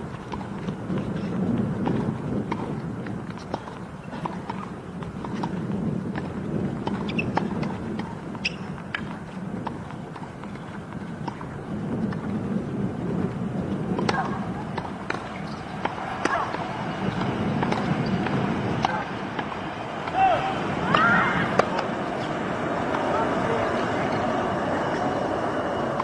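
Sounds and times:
low outdoor rumble: 0.0 - 26.0
tennis balls bouncing: 0.0 - 26.0.

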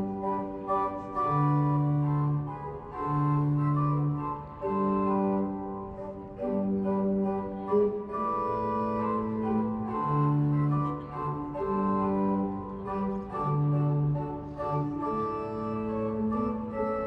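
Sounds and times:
pipe organ chords: 0.0 - 17.0.

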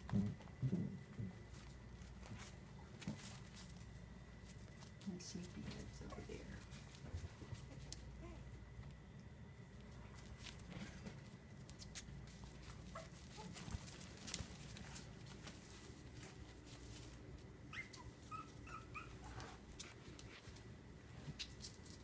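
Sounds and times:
small paws scuffling: 0.0 - 22.0
puppies whimpering: 17.6 - 19.6.

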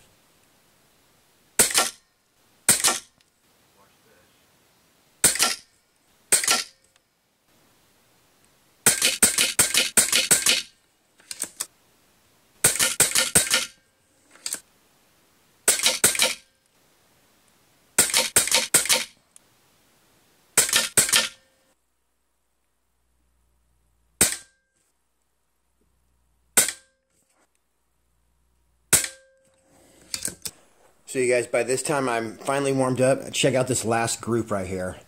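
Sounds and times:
sharp clicks in bursts: 1.6 - 2.1, 2.7 - 3.3, 5.2 - 5.7, 6.3 - 7.0, 8.8 - 11.7, 12.6 - 13.8, 15.6 - 16.8, 18.0 - 19.5, 20.6 - 21.4.

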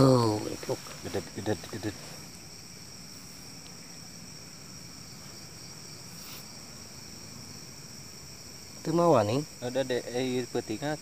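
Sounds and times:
faint rustle: 0.0 - 7.0
crickets and insects trilling: 0.0 - 11.0.

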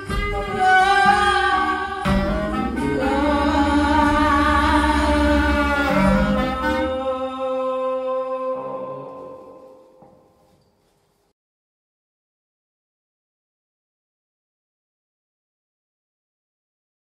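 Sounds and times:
clarinet: 0.0 - 9.9
woman singing long notes: 0.0 - 10.0
electronic drones: 1.6 - 7.1
deep low thuds: 2.0 - 6.9.

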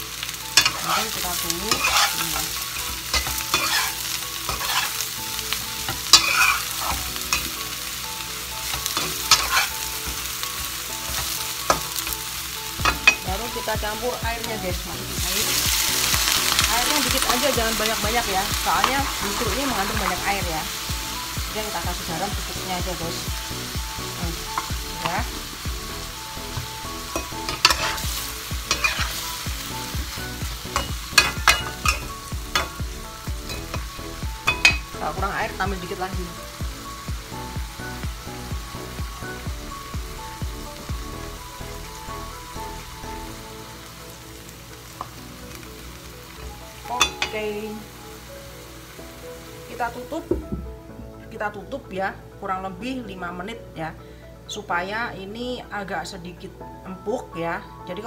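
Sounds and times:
food sizzling in hot oil: 0.0 - 50.5
metal spatula scraping wok: 0.5 - 5.2, 5.8 - 7.6, 8.6 - 12.2, 26.5 - 32.8.

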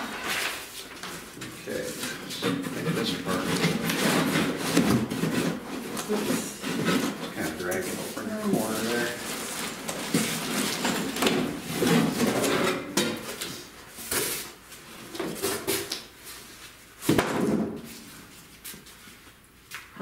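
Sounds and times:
cardboard scraping and rubbing: 0.0 - 13.0.

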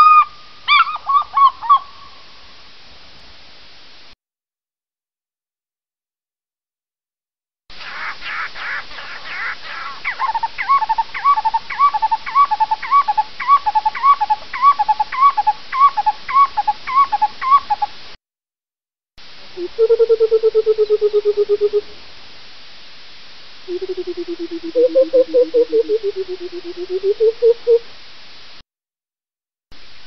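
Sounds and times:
bird bubbling hooting call: 7.8 - 17.9, 19.6 - 21.9, 23.7 - 27.8.

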